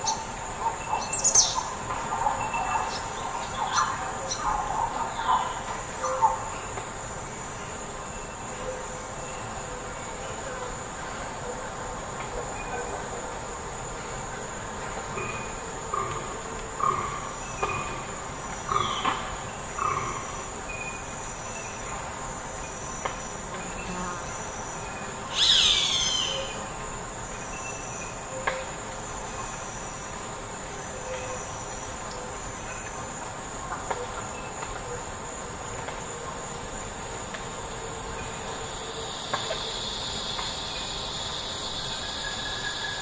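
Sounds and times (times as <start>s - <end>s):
birdsong: 0.0s - 6.8s, 24.8s - 26.7s
high-pitched insect drone: 15.1s - 30.2s, 37.6s - 43.0s.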